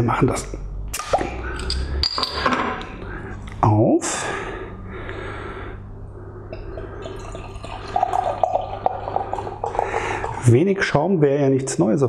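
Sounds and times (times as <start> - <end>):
bottle neck gurgling: 6.5 - 10.6
beer pouring into glass: 6.6 - 10.6.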